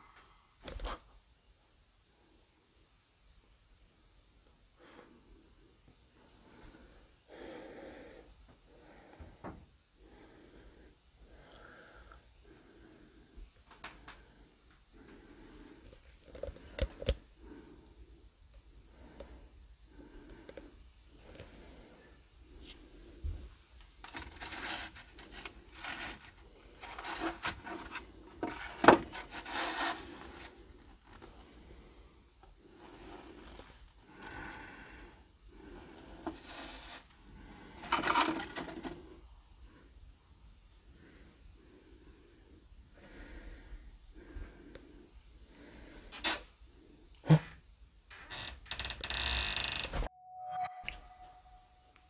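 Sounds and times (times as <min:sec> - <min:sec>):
person breathing: 0:04.8 - 0:47.7
cardboard boxes scraping on wood: 0:25.8 - 0:30.5.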